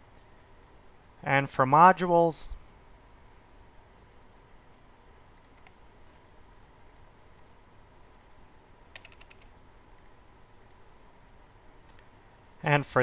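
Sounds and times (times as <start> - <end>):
computer mouse clicks: 3.1 - 3.4, 5.3 - 6.2, 6.8 - 11.0, 11.8 - 12.1
keyboard typing: 5.3 - 6.2, 6.8 - 11.0, 11.8 - 12.1.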